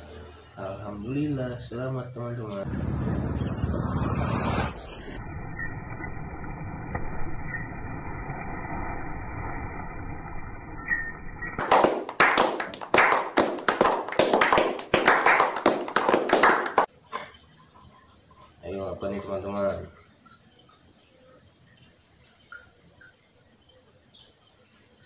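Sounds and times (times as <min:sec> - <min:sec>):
people clapping: 0:11.6 - 0:16.9.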